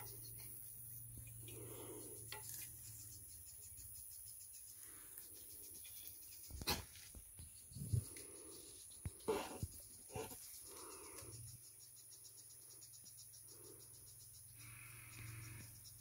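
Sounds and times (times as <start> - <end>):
high insect hum: 0.0 - 16.0.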